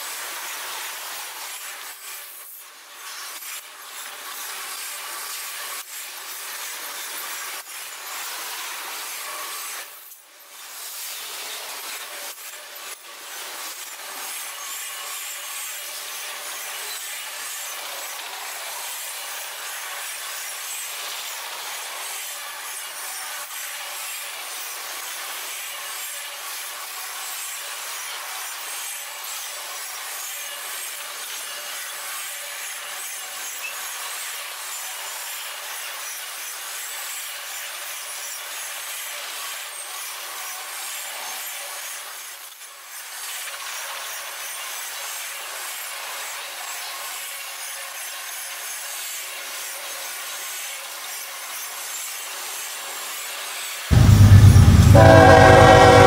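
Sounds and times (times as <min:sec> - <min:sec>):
train wheels rubbing on rails: 0:53.9 - 0:56.0.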